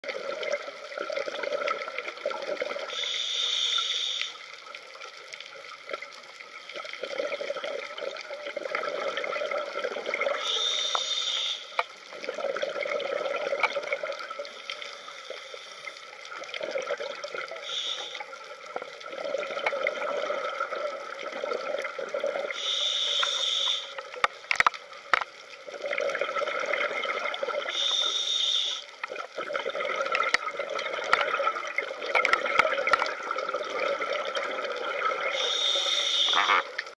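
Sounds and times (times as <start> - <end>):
exhaled air bubbling: 0.0 - 3.4, 6.7 - 11.1, 11.8 - 14.7, 16.2 - 24.2, 25.1 - 36.9
regulator hissing inhale: 2.9 - 4.4, 10.4 - 11.8, 17.6 - 18.3, 22.6 - 24.0, 27.7 - 28.9, 35.3 - 36.4.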